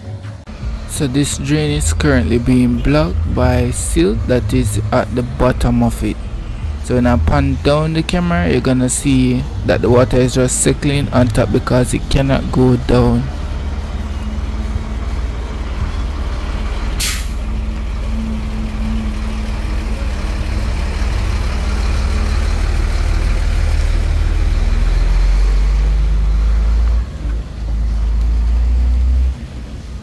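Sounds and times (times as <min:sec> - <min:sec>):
dump truck engine rumble: 0:00.0 - 0:30.0
air brakes hiss: 0:17.0 - 0:17.4.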